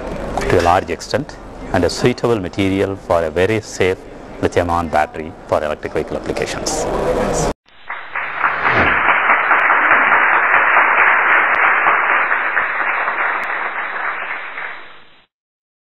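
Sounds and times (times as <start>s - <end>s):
audience applause: 8.0s - 15.2s.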